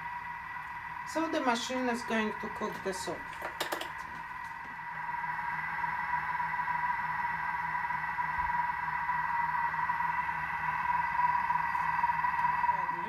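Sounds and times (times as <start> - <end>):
kitchen appliance motor whine: 0.0 - 13.0.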